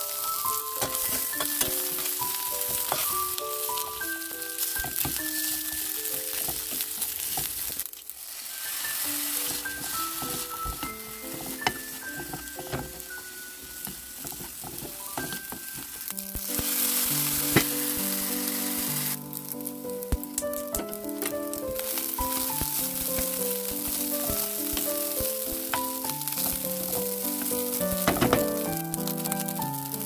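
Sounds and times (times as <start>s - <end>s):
light background music: 0.0s - 7.5s, 8.7s - 30.0s
rice sizzling in a pan: 0.0s - 30.0s.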